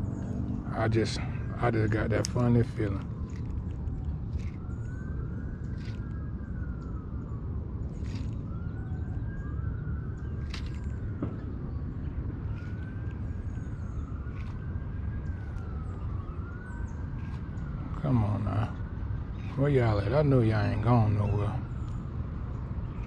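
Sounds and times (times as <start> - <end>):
low rumble: 0.0 - 9.6
faint siren wailing: 0.0 - 23.0.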